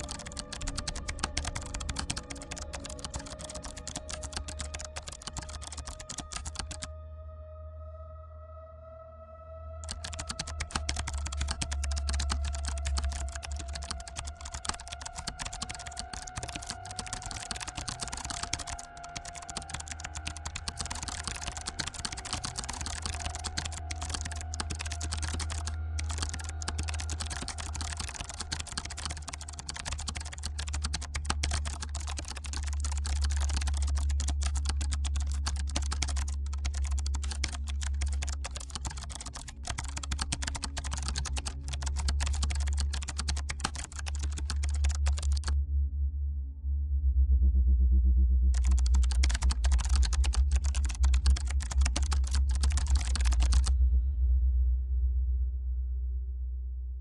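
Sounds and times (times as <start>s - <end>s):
keyboard typing: 0.0s - 6.9s, 9.8s - 45.5s, 48.6s - 53.7s
steady low hum: 45.5s - 48.6s.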